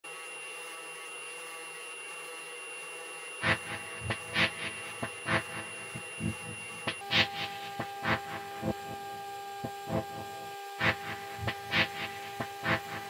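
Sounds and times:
hum of held tones: 0.1 - 13.0
drum beat: 3.4 - 13.0.

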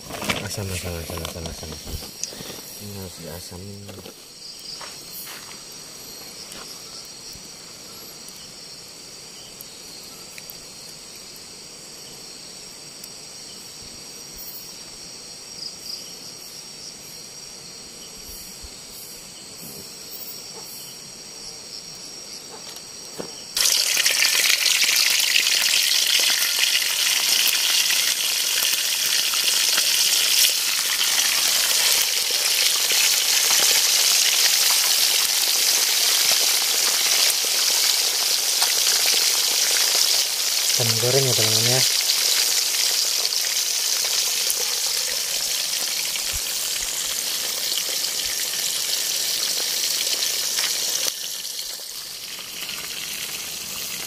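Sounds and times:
insects chirring: 0.0 - 54.0
fish frying in hot oil: 23.6 - 54.0.

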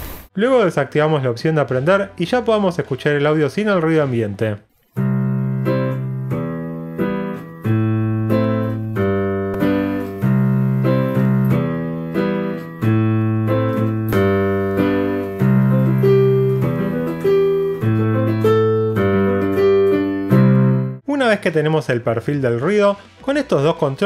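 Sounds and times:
piano keyboard playing: 4.8 - 21.1.

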